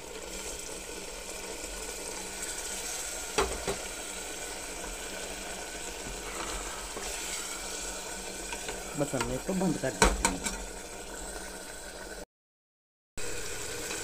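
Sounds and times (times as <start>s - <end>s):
curry sizzling in a pot: 0.0s - 12.2s, 13.2s - 14.0s
water pouring: 0.0s - 12.2s
metal spatula stirring: 6.0s - 9.6s.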